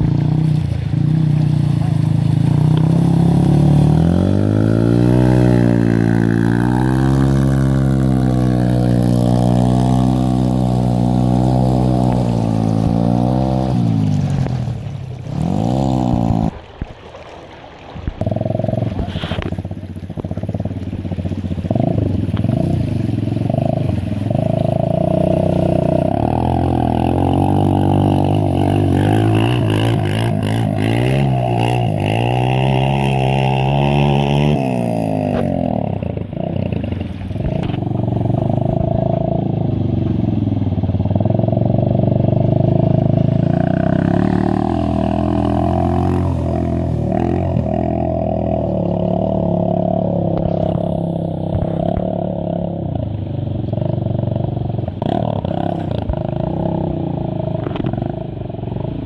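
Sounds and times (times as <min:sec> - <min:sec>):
dirt bike engine revving: 0:00.0 - 0:16.6, 0:21.6 - 0:40.3, 0:41.0 - 0:52.9
water splashing off wheels: 0:00.0 - 0:59.0.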